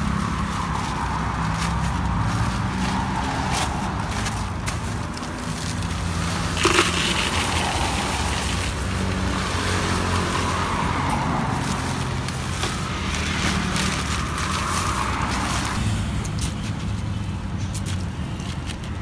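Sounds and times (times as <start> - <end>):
cars passing by: 0.0 - 19.0.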